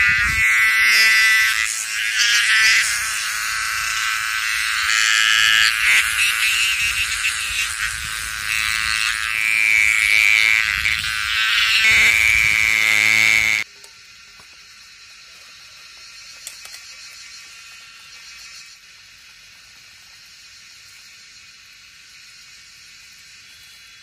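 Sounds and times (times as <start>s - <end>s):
cicada buzzing: 0.0s - 24.0s
steady hiss: 11.6s - 24.0s.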